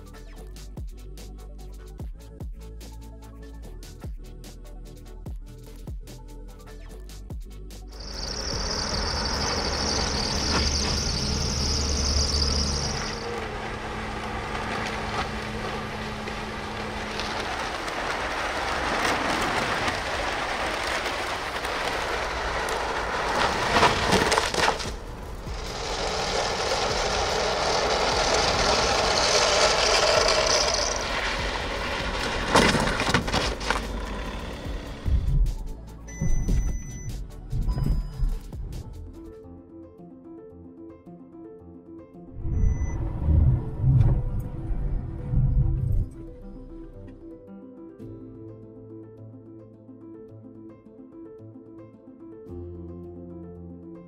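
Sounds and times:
van road noise: 7.9s - 39.1s, 42.3s - 47.2s.

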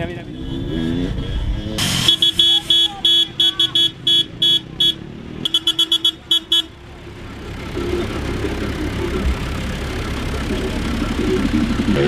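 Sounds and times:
car engine running low: 0.0s - 12.0s
car horn short beeps: 1.8s - 6.8s.

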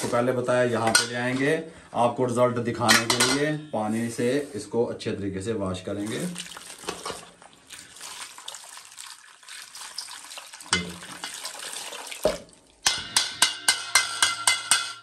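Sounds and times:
water splashing into basin: 6.0s - 12.8s.

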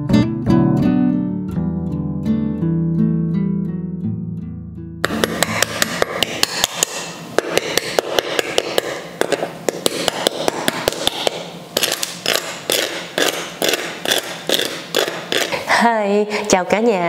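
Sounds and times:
knife tapping crispy pork skin: 5.0s - 15.6s.

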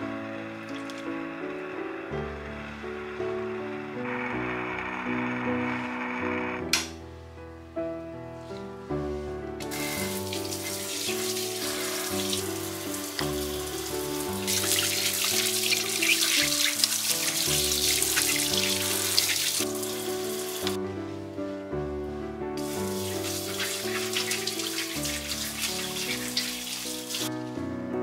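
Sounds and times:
gentle background music: 0.0s - 28.0s
tap water running into sink: 0.7s - 1.0s, 9.6s - 20.8s, 22.6s - 27.3s.

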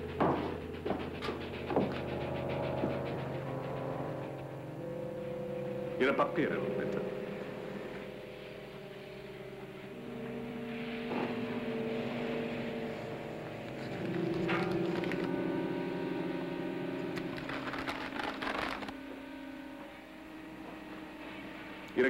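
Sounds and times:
tense dramatic underscore: 0.0s - 22.0s
paper rustling: 13.8s - 15.3s, 17.2s - 19.0s.

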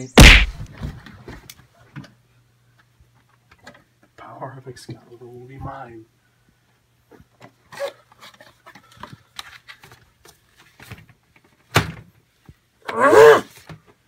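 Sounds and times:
sharp knock: 0.1s - 0.6s.

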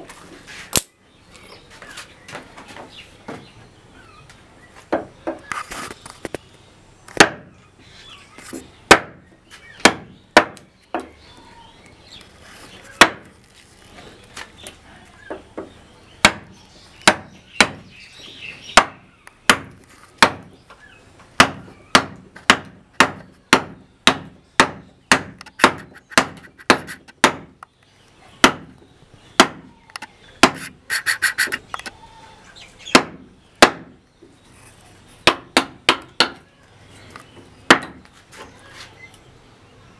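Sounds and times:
hammer striking chisel into wood: 21.4s - 27.5s, 35.3s - 36.4s.

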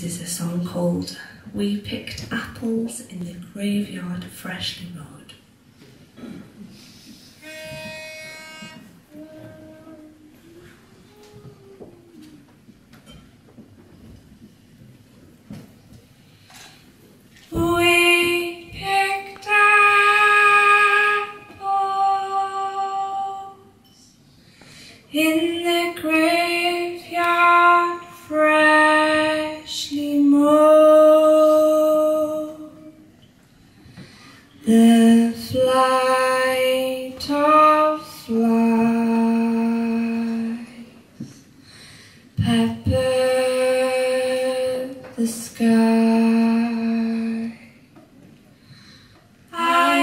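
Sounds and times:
woman singing unaccompanied: 7.4s - 12.4s, 17.5s - 23.8s, 25.1s - 33.1s, 34.6s - 41.0s, 42.4s - 47.8s, 49.5s - 50.0s.

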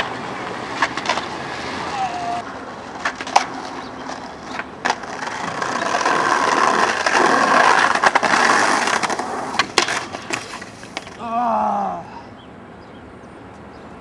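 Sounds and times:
skateboard clacks: 0.0s - 11.2s
skateboard wheels rumbling: 0.0s - 11.2s.

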